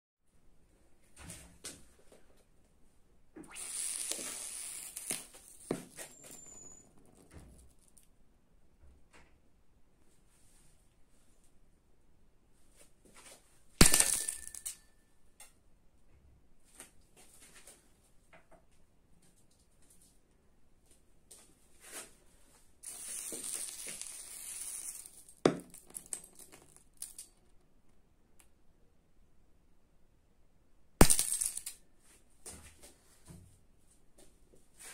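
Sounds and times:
sharp pops: 3.4 - 5.9
sodium hissing sizzle: 3.5 - 5.3.

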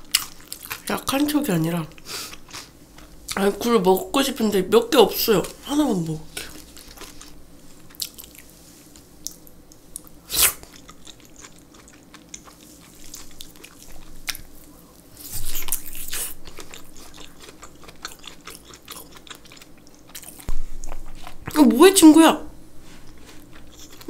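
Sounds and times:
wet biting and chewing: 0.0 - 0.9, 6.4 - 8.5, 9.2 - 14.6, 15.2 - 21.6, 23.1 - 24.0.

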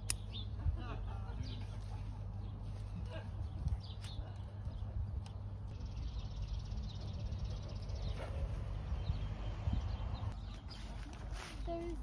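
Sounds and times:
wind rumble on microphone: 3.0 - 10.4.

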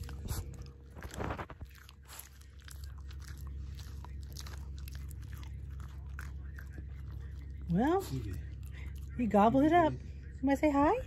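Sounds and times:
dog crunching a treat: 0.0 - 9.7.

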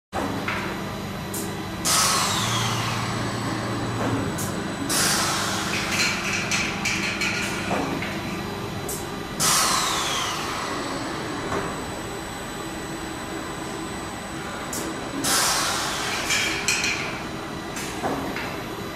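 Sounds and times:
low motor hum: 0.2 - 15.3
compressed air hissing: 4.9 - 5.8, 9.4 - 10.8, 15.2 - 16.3.

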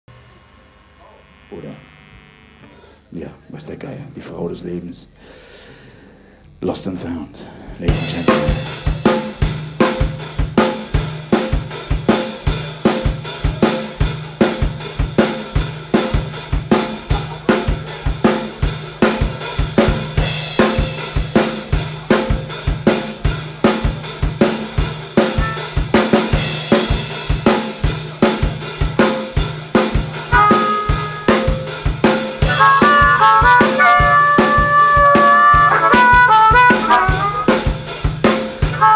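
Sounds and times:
live band playing: 7.9 - 38.9
bass drum and snare beat: 8.0 - 38.9
cymbals: 8.0 - 38.9
harmonica held note: 25.3 - 26.2, 30.3 - 37.9, 38.6 - 38.9.

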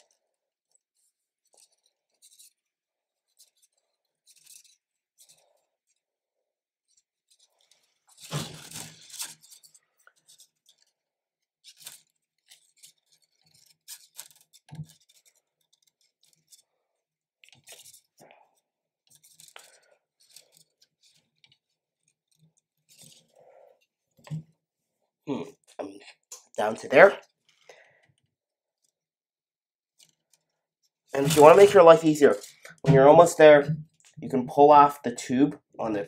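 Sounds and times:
plastic filament scraping in tubing: 6.8 - 18.3, 31.1 - 34.2.

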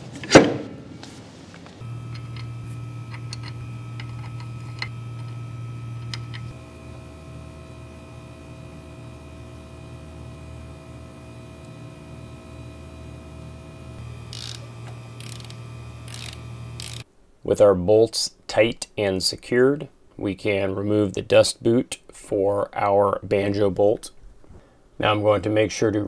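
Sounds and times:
steady low hum: 0.6 - 17.8.

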